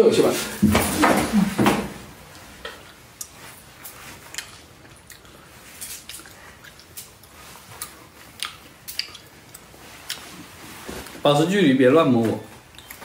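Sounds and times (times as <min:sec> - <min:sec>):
low room hiss: 0:00.0 - 0:13.0
small clicks and smacks: 0:02.6 - 0:10.3.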